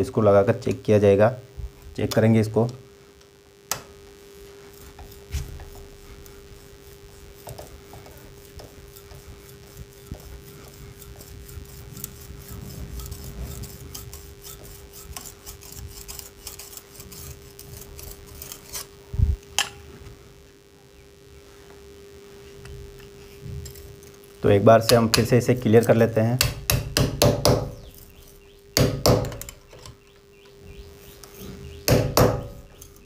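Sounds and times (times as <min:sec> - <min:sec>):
steel scraping against brick: 0:04.5 - 0:19.0.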